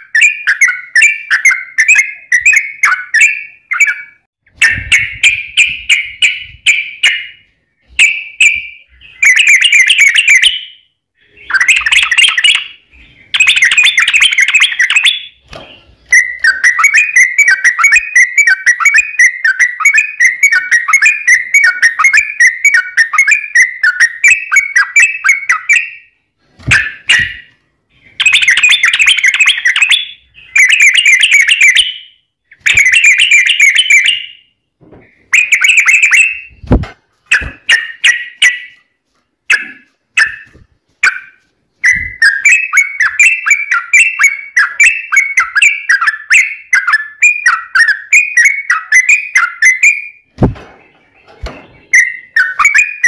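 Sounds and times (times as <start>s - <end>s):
bird chirps: 0.0s - 53.0s.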